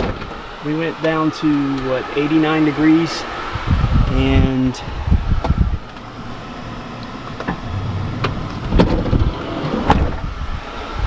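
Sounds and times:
air conditioner humming: 0.0s - 11.0s
sharp clicks and knocks: 7.0s - 10.2s.

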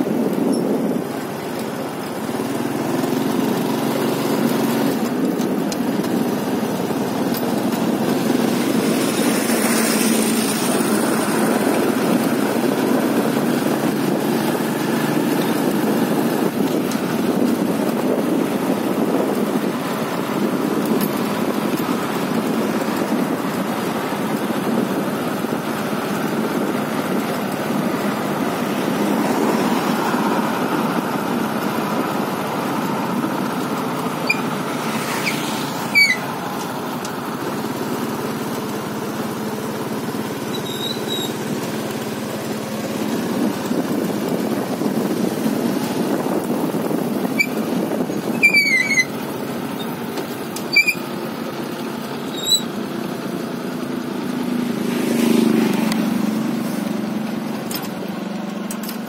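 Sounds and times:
road and wind noise: 0.0s - 59.0s
small motorcycle engine running: 0.0s - 59.0s
traffic noise: 0.0s - 59.0s.

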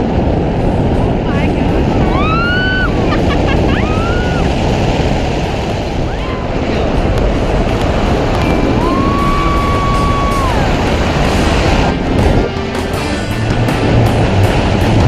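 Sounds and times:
wind roaring over microphone: 0.0s - 15.0s.

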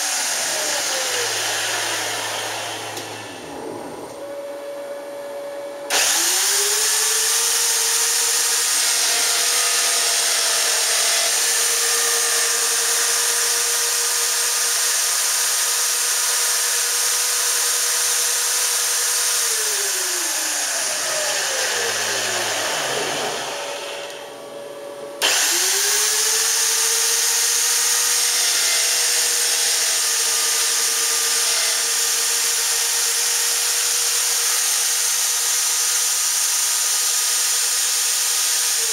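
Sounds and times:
spindle motor whining: 0.0s - 13.1s, 19.3s - 31.8s.

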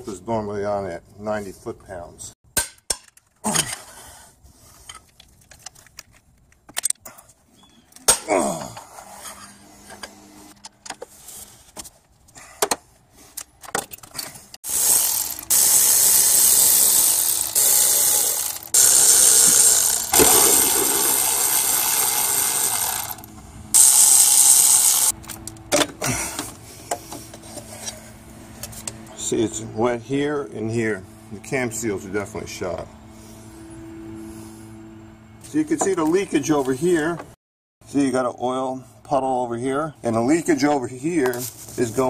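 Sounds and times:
electric ratchet spinning: 14.6s - 25.4s.

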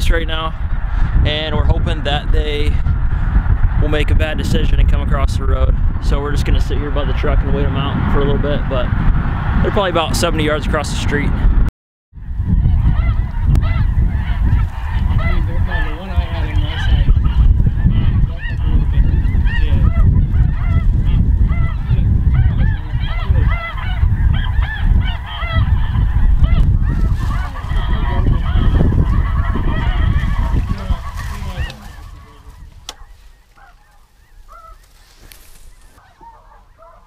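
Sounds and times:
geese honking: 12.3s - 37.0s.

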